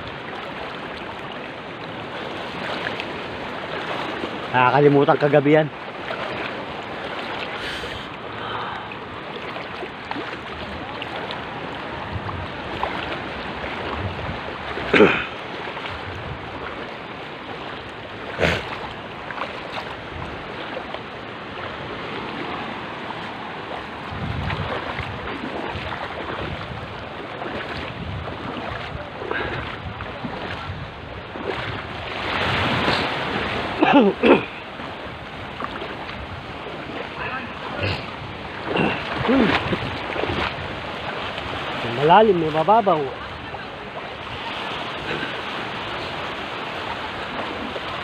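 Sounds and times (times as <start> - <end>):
small waves washing in surf: 0.0 - 48.0
wind on microphone: 9.9 - 17.4, 18.2 - 42.1.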